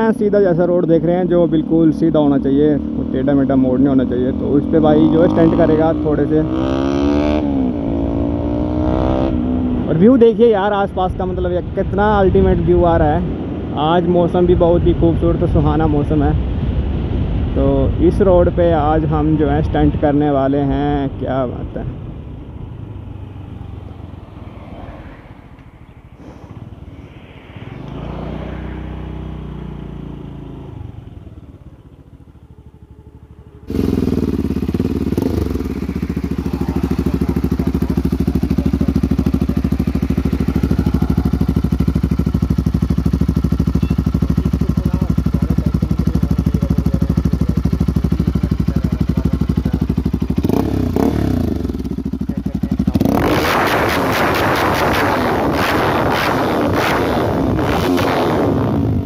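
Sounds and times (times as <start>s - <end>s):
scooter road noise: 0.0s - 11.5s, 20.5s - 59.0s
car passing: 21.9s - 43.6s
motorcycle engine idling: 28.3s - 53.2s.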